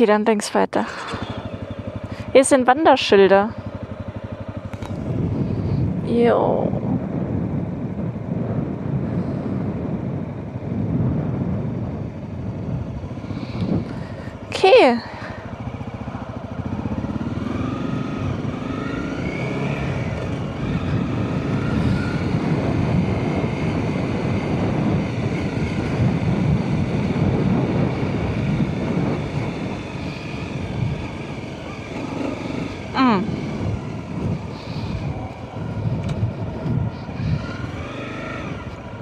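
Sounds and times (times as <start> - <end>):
motorcycle engine rumble: 0.0 - 39.0.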